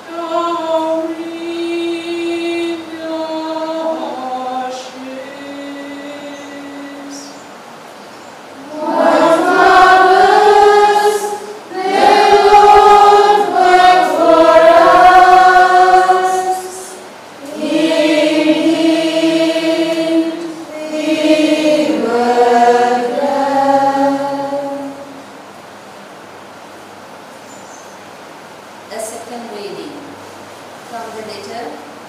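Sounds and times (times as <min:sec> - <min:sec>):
choir singing chant-like melody: 0:00.0 - 0:07.4, 0:08.5 - 0:25.4.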